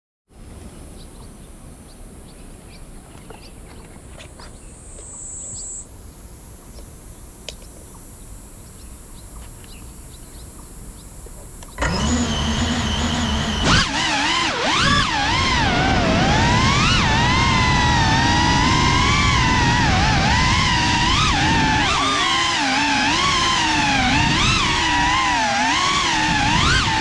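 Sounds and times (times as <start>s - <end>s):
small ticks: 6.7s - 8.1s
drone motors whining: 11.2s - 27.0s.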